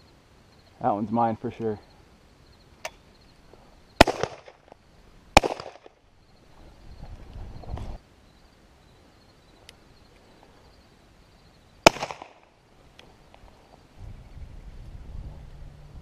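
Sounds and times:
rustle of movement: 0.0s - 16.0s
shotgun shot with echo: 4.0s - 4.6s, 5.4s - 6.0s, 11.8s - 12.5s
wind on microphone: 6.5s - 8.0s, 13.9s - 16.0s.

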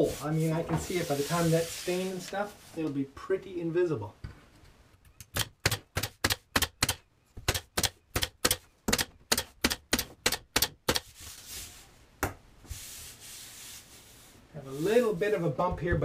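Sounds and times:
pin nailer firing into wood: 5.3s - 11.0s.

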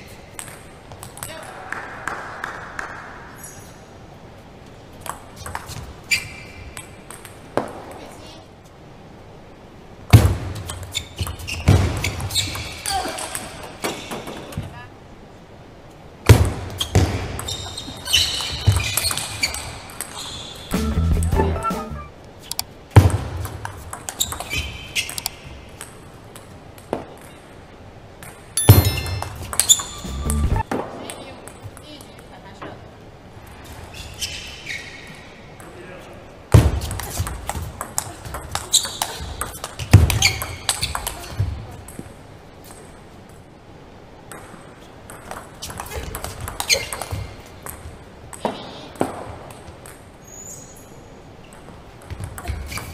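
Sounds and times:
shoes squeaking on floor: 5.4s - 6.7s, 10.6s - 13.2s, 16.7s - 22.6s, 24.1s - 25.6s, 28.6s - 30.7s, 33.9s - 35.3s, 38.0s - 41.5s, 45.6s - 47.5s, 50.2s - 51.0s, 52.1s - 52.9s
high squeaks: 28.6s - 30.6s.

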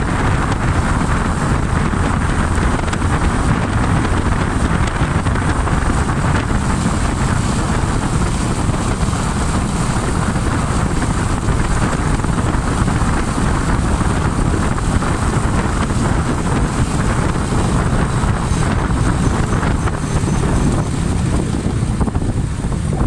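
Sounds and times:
motorcycle engine running: 0.0s - 23.0s
wind rush on microphone: 0.0s - 23.0s.

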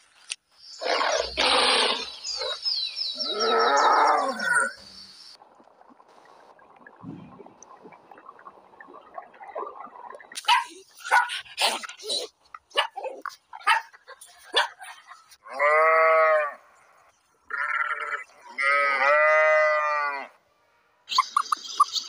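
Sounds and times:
livestock calling: 0.8s - 4.7s.

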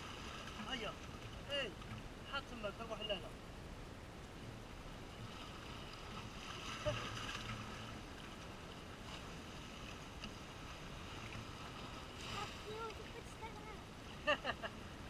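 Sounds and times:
water lapping on rocks: 4.9s - 14.0s.

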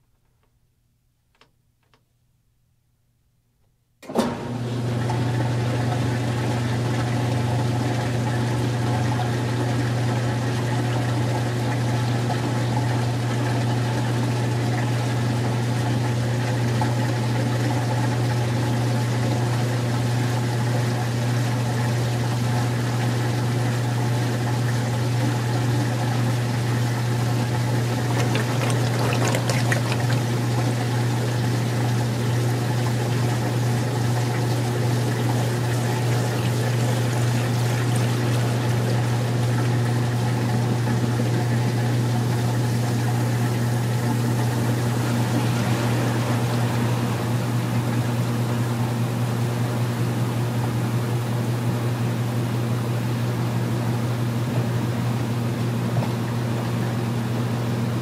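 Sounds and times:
washing machine spinning hum: 4.0s - 58.0s
water pouring out: 27.8s - 31.8s, 44.1s - 48.6s.

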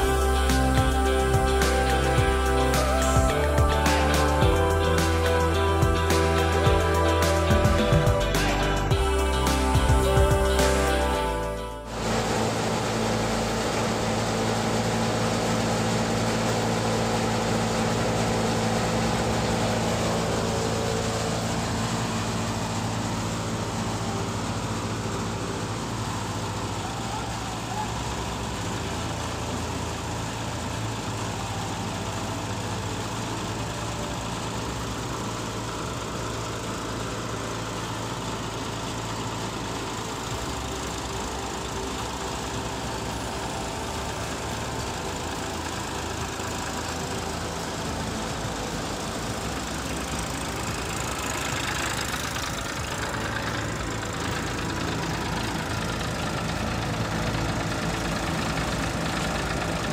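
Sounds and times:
diesel engine running: 0.0s - 59.9s
thresher churning: 11.9s - 59.9s.

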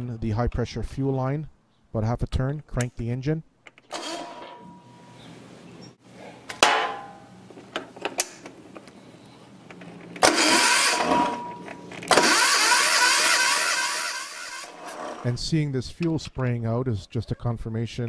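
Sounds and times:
diesel engine starter cranking: 3.9s - 4.7s, 10.1s - 15.3s.

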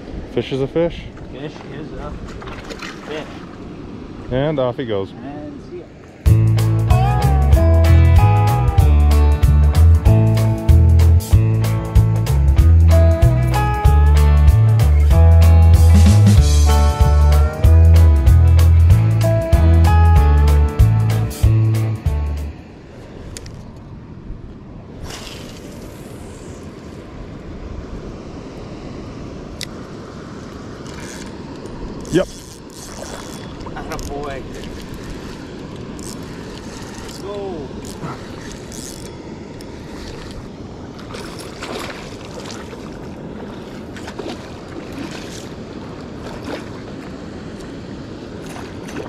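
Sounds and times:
fish splashing at the surface: 25.0s - 26.6s, 39.7s - 49.0s.

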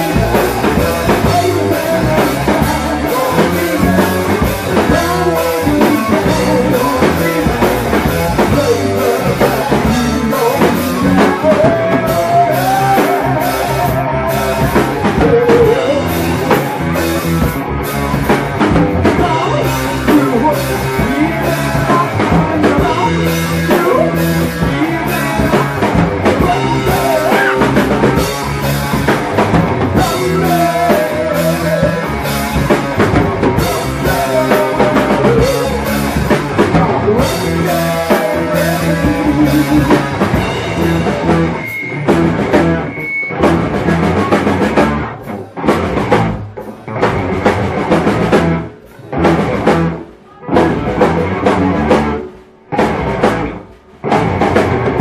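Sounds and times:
person singing: 0.0s - 17.4s, 18.2s - 41.6s
drum kit beat: 0.0s - 55.0s
electric guitar: 0.0s - 55.0s.

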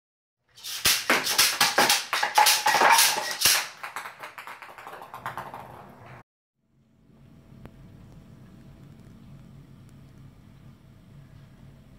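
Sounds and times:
ping pong balls bouncing: 1.1s - 6.2s.

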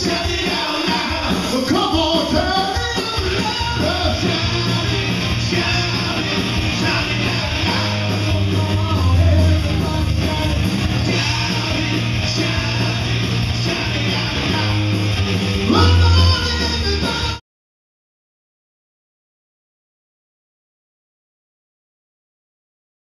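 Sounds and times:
live rock band playing: 0.0s - 17.4s.

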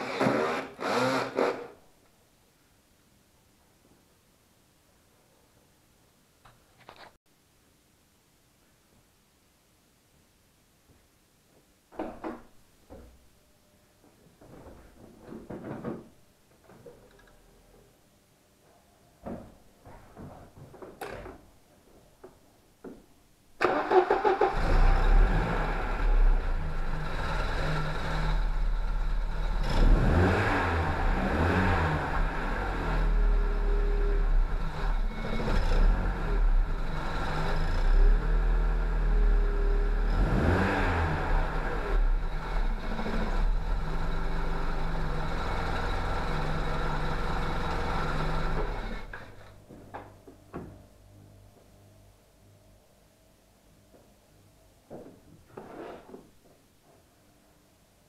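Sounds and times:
car engine starting and idling: 23.6s - 49.4s
engine revving: 23.7s - 49.3s.

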